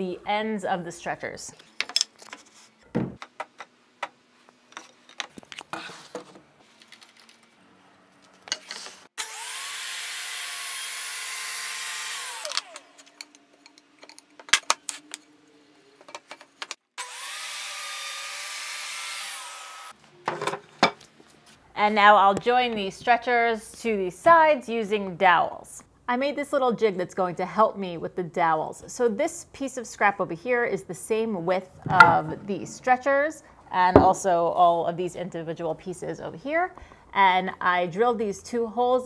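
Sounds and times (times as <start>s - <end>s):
table saw cutting wood: 9.2s - 13.0s, 17.0s - 19.9s.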